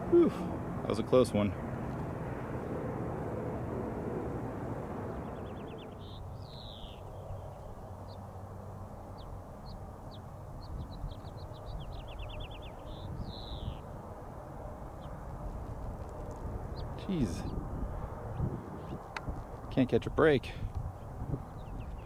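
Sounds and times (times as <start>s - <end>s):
songbird singing: 5.0s - 22.0s.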